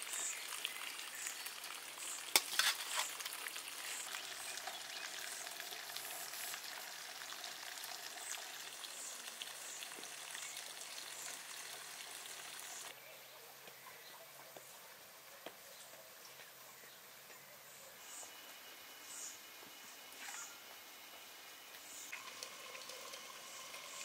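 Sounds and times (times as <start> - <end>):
food sizzling and crackling: 0.0 - 13.0, 18.1 - 24.0.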